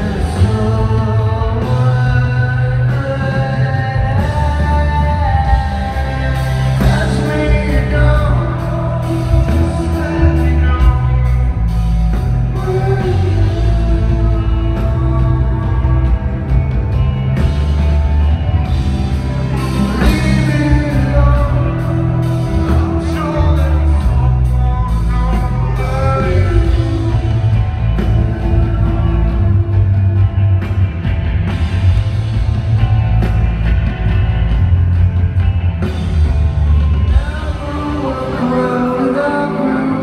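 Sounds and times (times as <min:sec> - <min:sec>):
rock band playing live with singing: 0:00.0 - 0:40.0.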